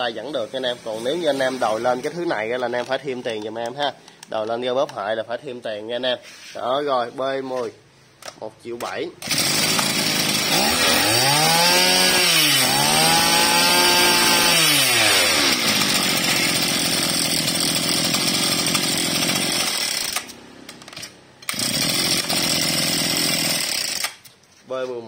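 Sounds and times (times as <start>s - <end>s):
brush-cutter engine revving: 0.5s - 3.8s, 9.2s - 24.3s.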